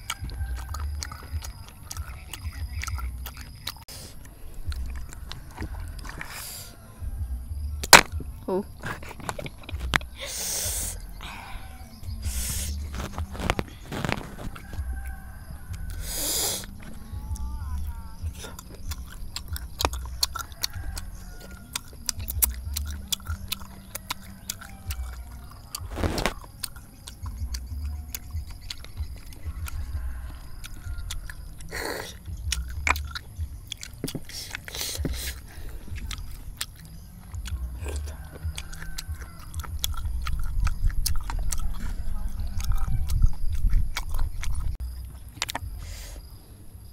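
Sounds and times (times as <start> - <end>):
chewing: 0.0 - 46.3
sucking noises: 3.8 - 7.1, 8.5 - 18.8, 24.2 - 26.6, 31.6 - 32.3, 34.1 - 36.6, 45.6 - 46.4.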